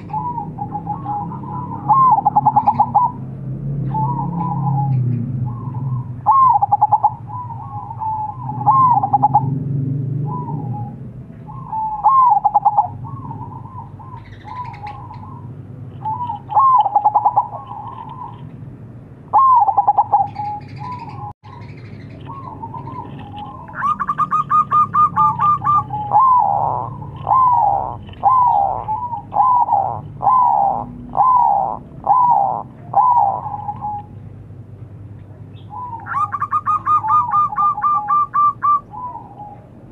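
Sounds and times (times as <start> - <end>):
dove cooing: 0.0 - 18.6, 19.3 - 34.2, 35.6 - 39.9
high buzzy bird call: 19.3 - 34.1.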